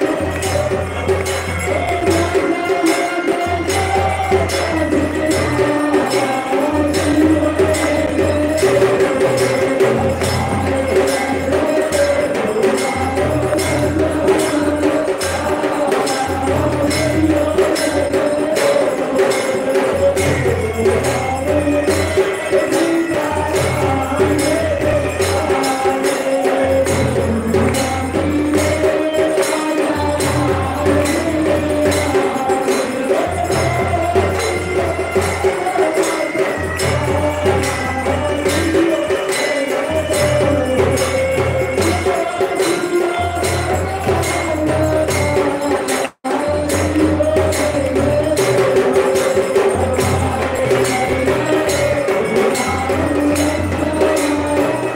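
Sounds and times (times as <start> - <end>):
fast jingling percussion: 0.0 - 54.9.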